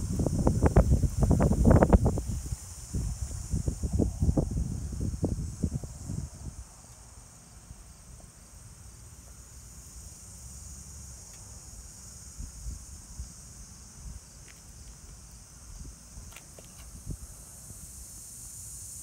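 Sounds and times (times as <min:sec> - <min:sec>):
insects chirring: 0:00.0 - 0:19.0
faint ticks: 0:11.2 - 0:11.5.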